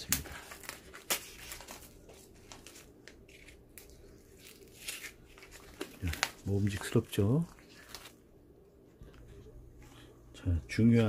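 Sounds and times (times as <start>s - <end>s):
plastic cling film tearing: 0.0s - 8.2s.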